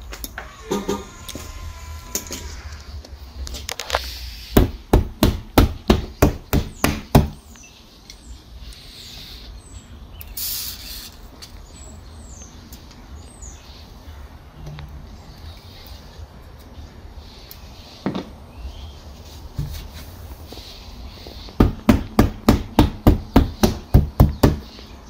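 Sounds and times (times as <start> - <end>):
sharp knocks on car door: 4.6 - 7.4, 21.6 - 24.7
spray can hiss: 10.4 - 11.2.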